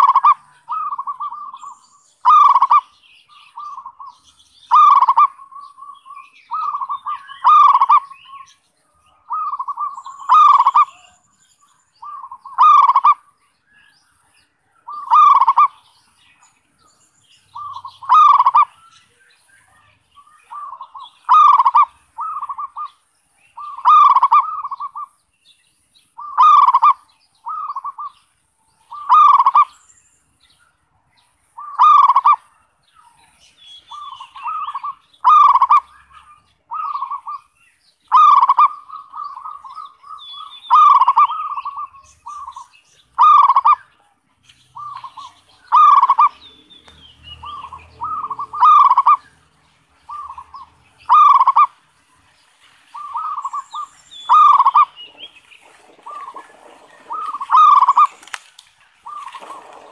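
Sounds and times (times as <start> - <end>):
dove cooing: 0.0 - 2.9, 4.7 - 8.4, 9.1 - 11.1, 12.0 - 13.2, 14.8 - 15.8, 17.5 - 18.7, 20.5 - 22.9, 23.6 - 25.1, 26.2 - 28.2, 28.9 - 29.7, 31.6 - 32.4, 33.9 - 37.5, 38.1 - 43.9, 44.8 - 46.5, 47.4 - 49.3, 50.0 - 51.8, 52.9 - 58.4, 59.0 - 59.9.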